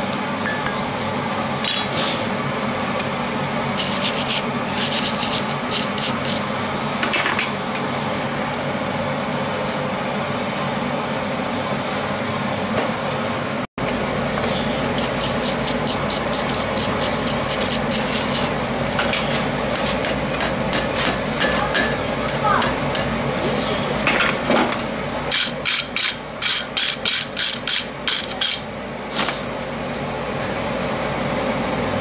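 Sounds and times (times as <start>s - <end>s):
steady mechanical hum: 0.0s - 32.0s
wire brush scrubbing steel: 3.8s - 6.4s, 15.0s - 18.5s.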